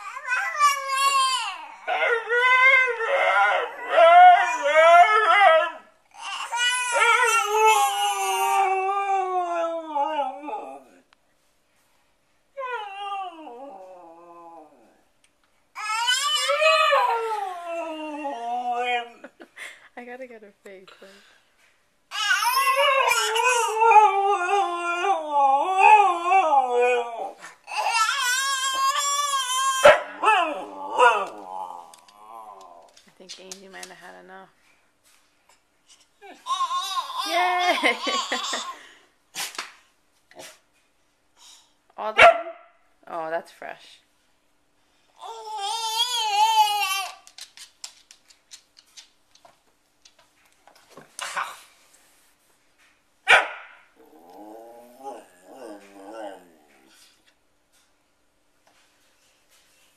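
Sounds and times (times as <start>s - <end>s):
dog howling and warbling: 0.0s - 11.0s, 12.6s - 15.0s, 15.8s - 19.3s, 22.1s - 33.0s, 45.2s - 47.5s, 54.0s - 57.1s
husky howling: 0.4s - 5.9s, 22.4s - 33.0s.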